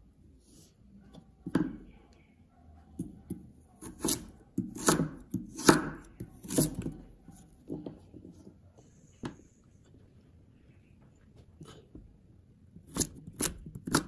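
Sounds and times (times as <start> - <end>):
knife slicing on chopping board: 3.8 - 7.0.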